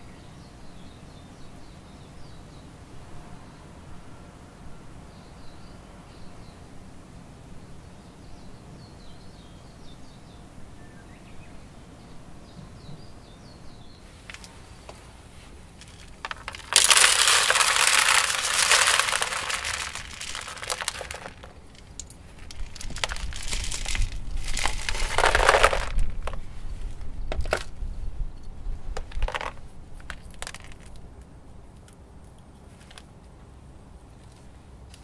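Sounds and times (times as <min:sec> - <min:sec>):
gravel pouring onto plastic lid: 0:14.2 - 0:15.0, 0:15.7 - 0:26.4, 0:29.0 - 0:30.9
stones clicking onto lid: 0:14.3 - 0:15.0, 0:15.7 - 0:26.4, 0:27.3 - 0:27.7, 0:29.0 - 0:31.0.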